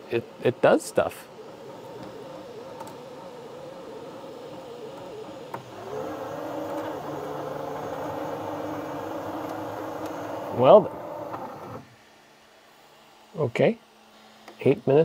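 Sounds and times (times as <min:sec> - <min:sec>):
printer motors whirring: 0:00.0 - 0:12.0.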